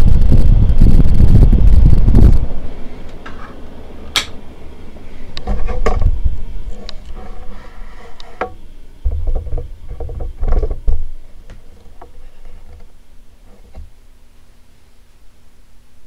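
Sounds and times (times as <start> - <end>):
ceiling fan air buffeting microphone: 0.0 - 16.0
rotary fan control clicks: 4.1 - 4.4.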